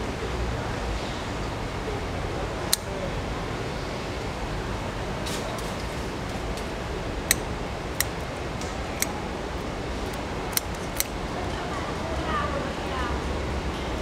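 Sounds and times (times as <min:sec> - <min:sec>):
steady background noise: 0:00.0 - 0:14.0
shears snipping shell: 0:07.2 - 0:09.2, 0:10.1 - 0:11.2.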